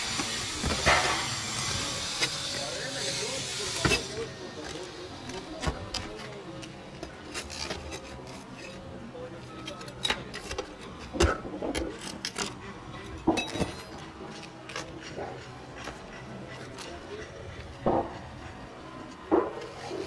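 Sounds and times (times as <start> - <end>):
metal and shingle scraping: 0.2 - 2.7.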